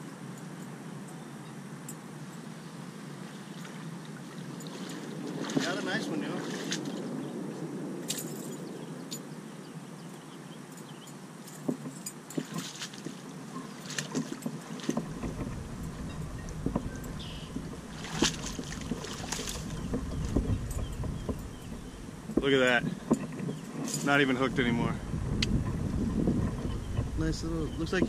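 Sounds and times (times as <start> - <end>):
light clicks and knocks: 11.5 - 28.0
wind noise on microphone: 11.6 - 28.0
deep wind rumble: 14.9 - 28.0
footsteps through tall grass: 17.6 - 20.6.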